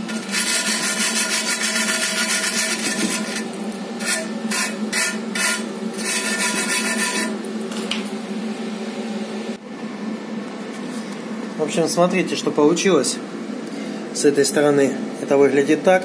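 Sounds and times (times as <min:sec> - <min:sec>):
wire brush scratching metal: 0:00.0 - 0:07.4
steady hum: 0:00.0 - 0:16.0.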